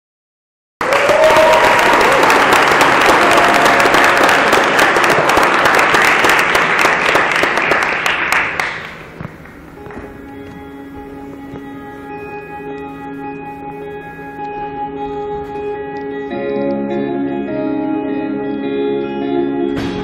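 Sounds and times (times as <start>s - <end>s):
rising whoop: 0.8s - 4.6s
audience applauding: 0.8s - 10.0s
sustained instrument notes: 9.7s - 20.0s.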